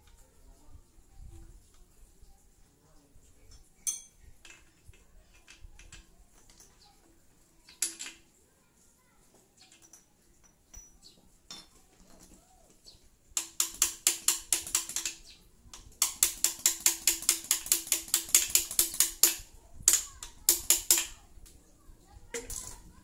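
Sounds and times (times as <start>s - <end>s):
ratchet wrench clicking: 15.8s - 21.2s.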